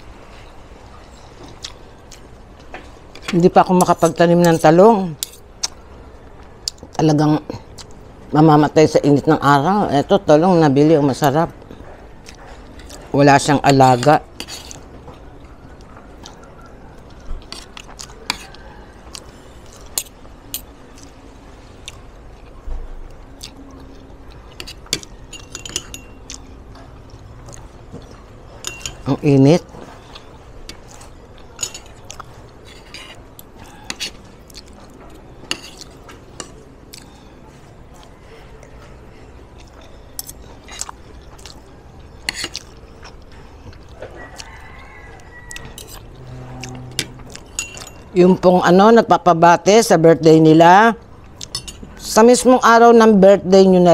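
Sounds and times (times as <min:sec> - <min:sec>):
close chewing: 0:01.4 - 0:02.7, 0:14.2 - 0:25.2, 0:26.2 - 0:28.7, 0:29.7 - 0:48.2
cutlery scraping ceramic plate: 0:13.8 - 0:14.8, 0:28.6 - 0:29.1, 0:31.6 - 0:34.2, 0:35.4 - 0:36.6, 0:45.6 - 0:48.1
cutlery clinking on plate: 0:24.6 - 0:26.4, 0:28.6 - 0:29.1, 0:46.9 - 0:48.1, 0:51.4 - 0:52.0
faint high tone: 0:46.2 - 0:47.3.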